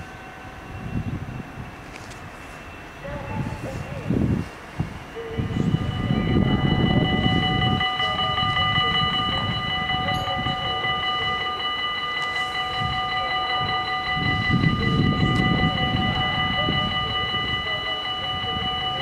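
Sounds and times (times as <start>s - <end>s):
level crossing bells ringing: 0.0s - 19.0s.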